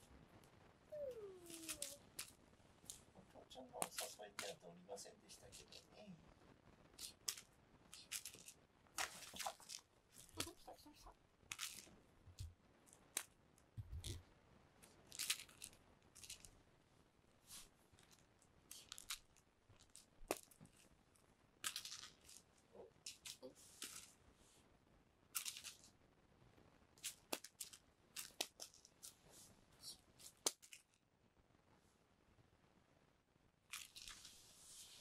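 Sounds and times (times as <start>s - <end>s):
scratchy rustles: 33.7s - 35.0s.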